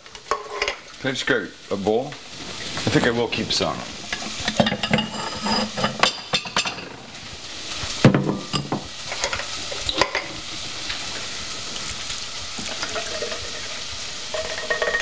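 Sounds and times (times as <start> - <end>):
vegetables sizzling in a pan: 0.0 - 15.0
bowl and metal cans clinking: 4.5 - 6.9, 14.3 - 15.0.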